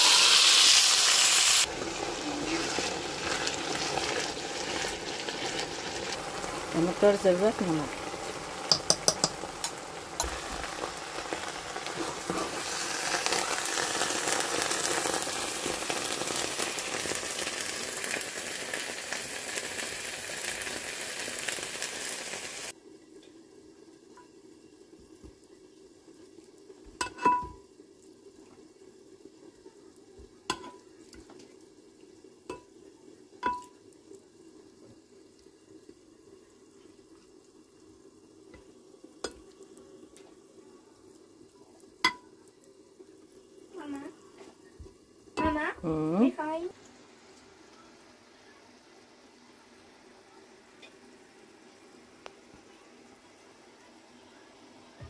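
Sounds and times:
vegetables sizzling in a pan: 0:00.0 - 0:55.0
utensil clinking on glass dish: 0:08.7 - 0:09.4.

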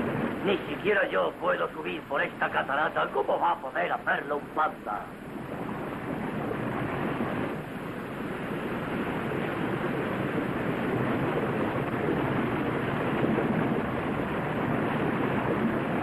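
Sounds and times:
waterfall rushing: 0:00.0 - 0:05.3.

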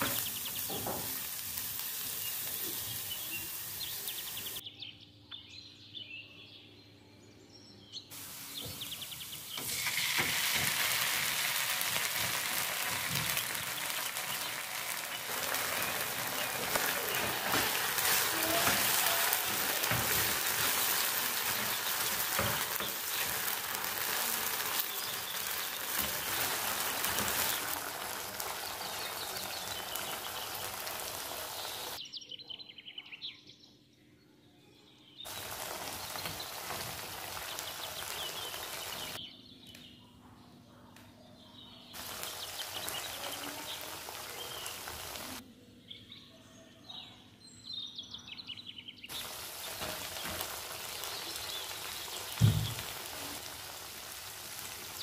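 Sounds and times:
sauce sizzling in frying pan: 0:00.0 - 0:04.6, 0:08.2 - 0:32.0, 0:35.3 - 0:39.2, 0:42.0 - 0:45.4, 0:49.1 - 0:55.0.

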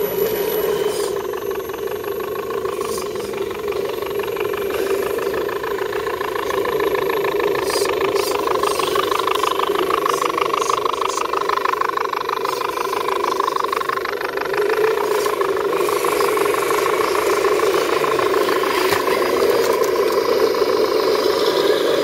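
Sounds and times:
electric motors and gears whining: 0:00.0 - 0:22.0.

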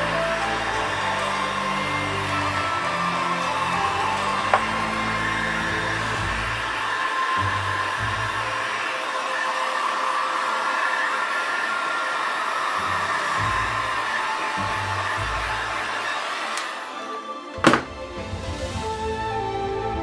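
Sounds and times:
heat gun blowing hot air: 0:12.8 - 0:16.9.

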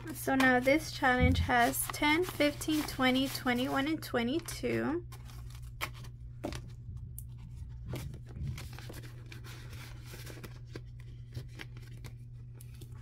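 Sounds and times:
paper bills rustling: 0:00.0 - 0:06.6, 0:07.4 - 0:13.0
low background hum: 0:00.0 - 0:13.0.

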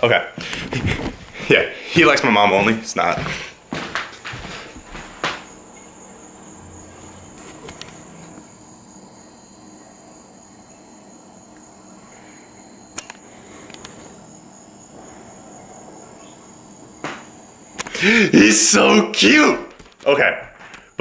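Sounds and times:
sharp clicks: 0:12.9 - 0:14.0.

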